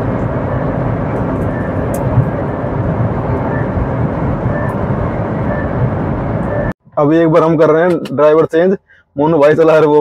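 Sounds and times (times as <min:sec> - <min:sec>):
engine drone: 0:00.0 - 0:07.1
road and wind noise: 0:00.0 - 0:10.0.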